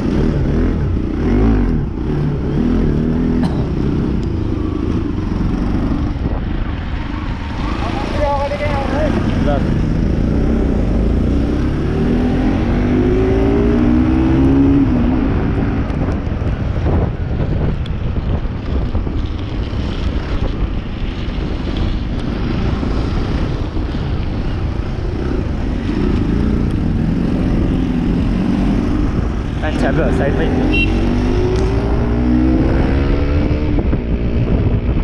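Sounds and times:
wind rumble: 0.0s - 35.0s
motorcycle engine accelerating: 8.7s - 17.7s, 22.4s - 35.0s.

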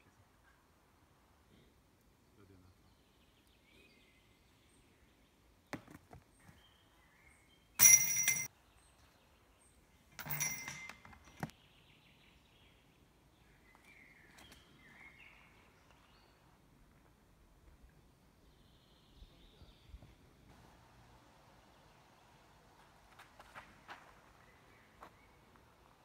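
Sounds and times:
chains jangling: 7.8s - 8.5s, 10.2s - 11.4s
birds chirping: 11.4s - 16.6s, 18.0s - 20.5s, 23.8s - 26.0s.

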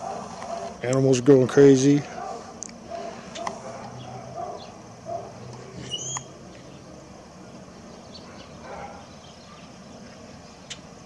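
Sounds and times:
animals giving low calls: 1.9s - 6.9s
high chirp: 5.8s - 6.3s.

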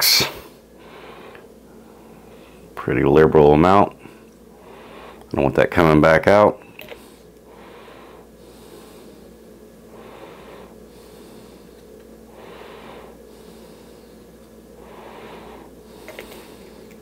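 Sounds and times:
person breathing out through nose: 6.9s - 17.0s.

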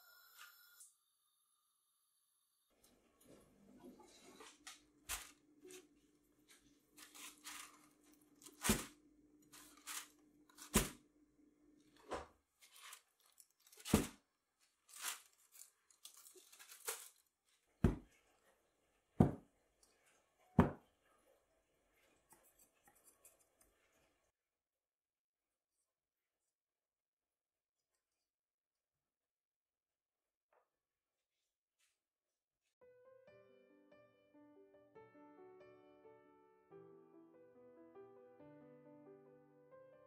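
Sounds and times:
aluminium foil crinkling: 5.0s - 5.9s, 6.5s - 11.0s, 11.9s - 17.8s.

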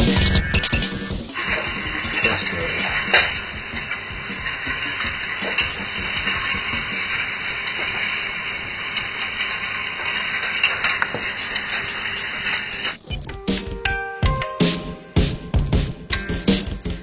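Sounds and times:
music: 0.0s - 7.2s, 13.0s - 17.0s
ball bearings rolling on wire rails: 0.0s - 13.0s.

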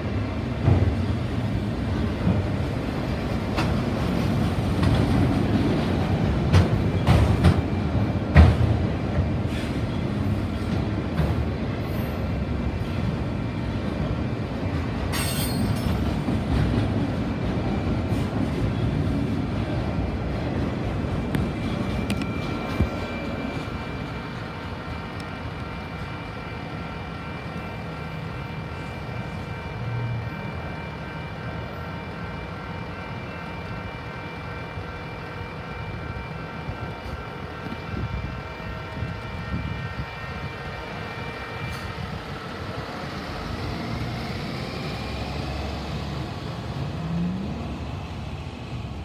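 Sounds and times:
crossing bell ringing: 15.1s - 16.2s
bus driving past accelerating: 42.8s - 49.0s
freight cars rumbling past: 42.8s - 49.0s.

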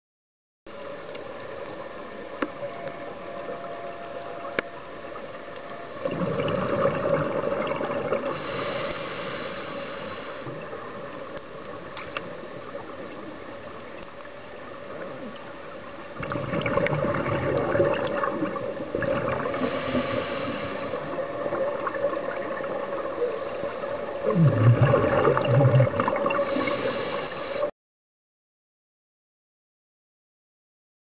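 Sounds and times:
rush of exhaled bubbles: 6.0s - 8.9s, 16.2s - 27.3s
diver breathing through regulator: 8.2s - 10.5s, 19.5s - 21.2s, 26.4s - 27.7s.

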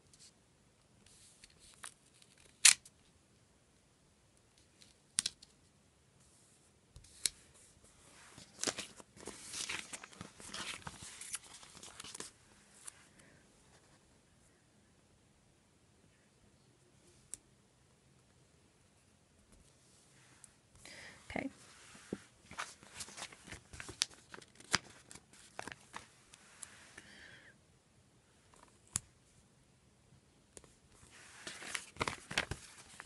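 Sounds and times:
paper rustling and crinkling: 8.1s - 13.0s, 21.7s - 26.8s, 31.0s - 33.0s.

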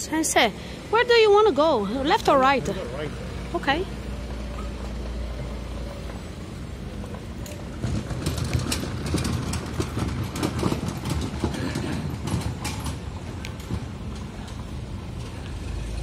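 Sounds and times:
cart wheels rattling on pavement: 0.0s - 16.0s.

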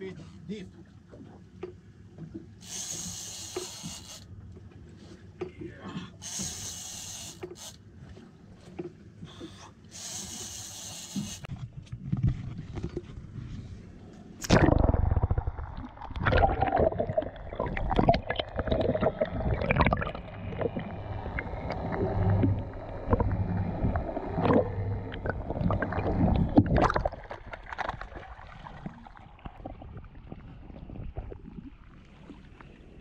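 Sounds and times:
underwater sloshing and gurgling: 0.0s - 33.0s
low steady hum: 11.4s - 33.0s.

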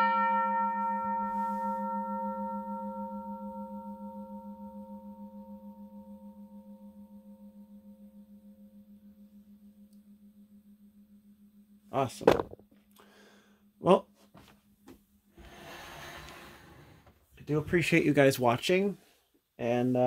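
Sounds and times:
crossing bell gong ringing: 0.0s - 4.3s.

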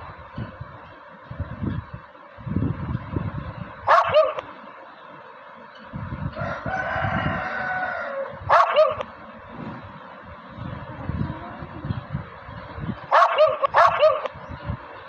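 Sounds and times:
dog barking: 3.9s - 4.4s, 8.5s - 9.1s, 13.1s - 14.4s
dog long held call: 3.9s - 4.5s, 8.0s - 9.1s, 13.1s - 14.4s.

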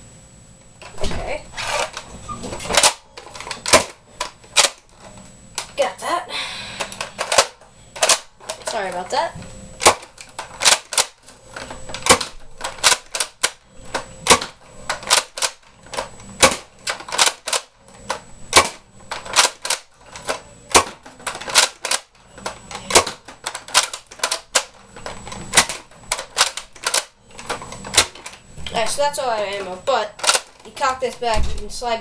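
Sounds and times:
toy dart blaster clacking: 6.9s - 8.9s, 9.8s - 28.4s, 29.5s - 31.4s.

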